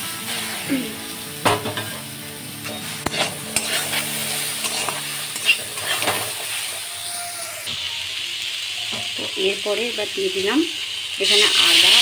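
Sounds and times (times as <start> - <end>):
oil sizzling: 0.0 - 12.0
metal spatula scraping pan: 2.6 - 7.1.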